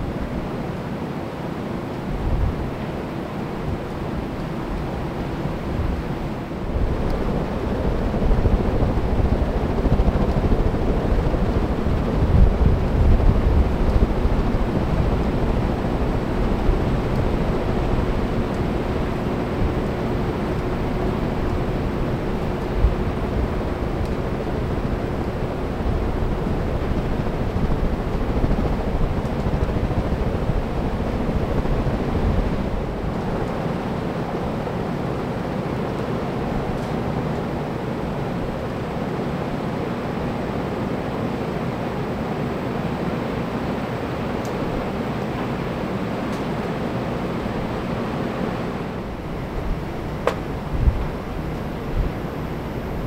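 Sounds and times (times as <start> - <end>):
ceiling fans running: 0.0 - 53.0
air buffeting microphone: 3.5 - 34.6, 48.9 - 53.0.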